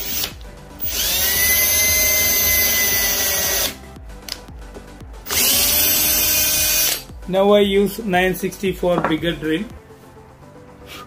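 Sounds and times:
drill boring into wood: 0:00.0 - 0:03.8, 0:05.3 - 0:07.0.

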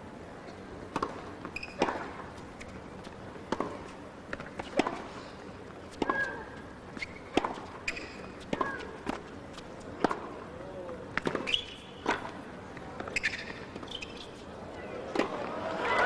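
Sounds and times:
shoes squeaking on court: 0:01.0 - 0:05.1, 0:05.7 - 0:15.6
racket striking tennis ball: 0:15.1 - 0:15.5.

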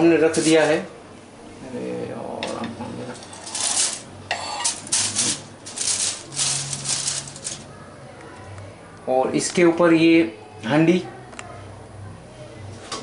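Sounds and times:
aluminium foil crinkling: 0:03.1 - 0:07.7.

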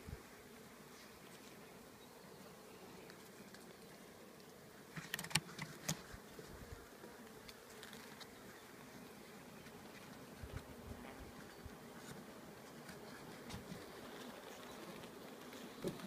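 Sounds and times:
bees humming in a hive: 0:00.0 - 0:16.0.

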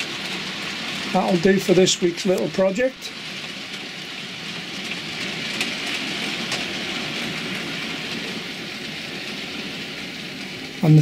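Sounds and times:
clicks over rail joints: 0:00.0 - 0:10.8
model train wheels rolling on rail: 0:00.0 - 0:11.0.

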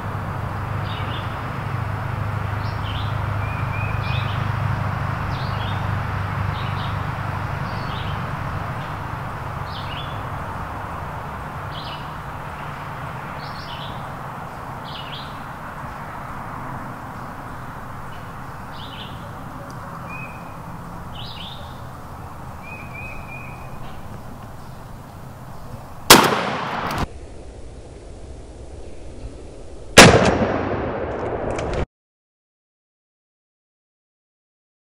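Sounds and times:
small birds chirping: 0:00.5 - 0:01.5, 0:02.4 - 0:26.1.

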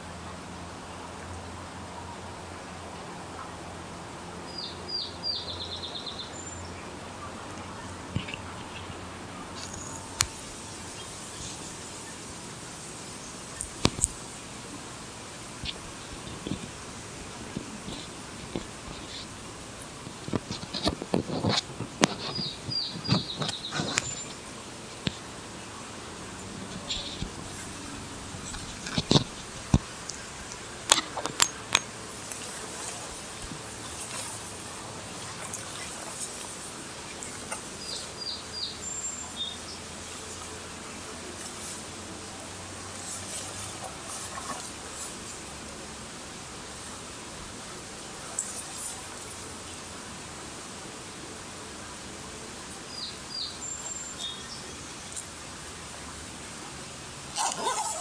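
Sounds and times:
shoreline hiss: 0:00.0 - 0:58.0
bird chirps: 0:22.2 - 0:24.4.

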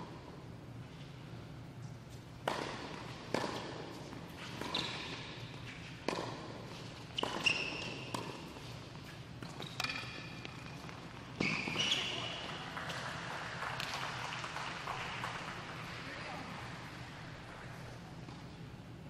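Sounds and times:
tennis balls struck and bouncing: 0:02.4 - 0:13.1, 0:13.8 - 0:15.6.

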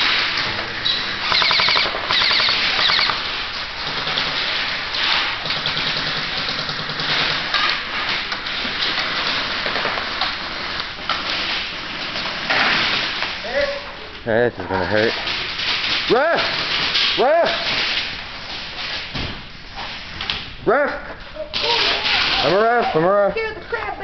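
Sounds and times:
airsoft rifles firing bursts: 0:01.2 - 0:10.2.

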